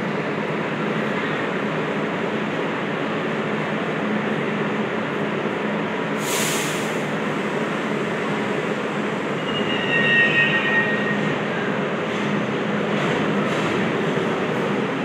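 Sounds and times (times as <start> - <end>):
subway train rumbling: 0.0 - 15.0
burst of hiss: 6.2 - 7.0
steel wheels squealing: 9.3 - 11.6.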